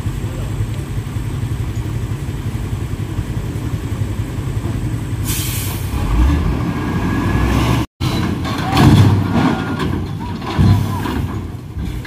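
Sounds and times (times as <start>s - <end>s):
diesel truck engine rumbling: 0.0s - 12.0s
air brakes hissing: 5.2s - 6.2s.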